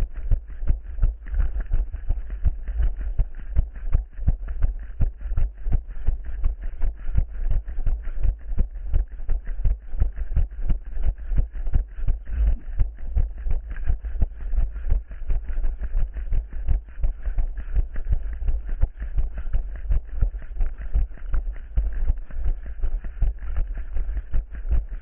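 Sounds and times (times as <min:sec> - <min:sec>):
low rumble: 0:00.0 - 0:25.0.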